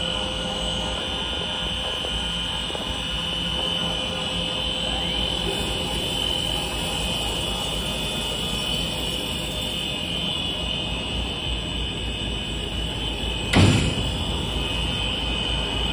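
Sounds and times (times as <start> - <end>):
machinery humming and whining: 0.0 - 15.9
sudden thump: 13.5 - 14.6.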